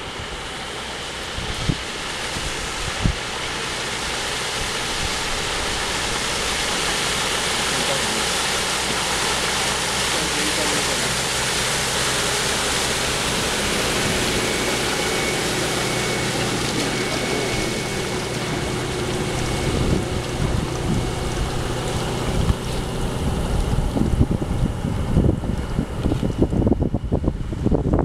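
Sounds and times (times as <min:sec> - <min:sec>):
motorboat engine and spray: 0:00.0 - 0:28.0
wind buffeting microphone: 0:01.3 - 0:03.3, 0:13.0 - 0:28.0.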